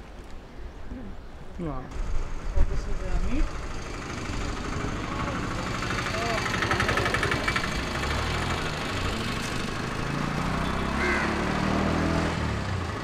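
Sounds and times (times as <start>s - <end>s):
engine idling low hum: 1.9s - 10.0s.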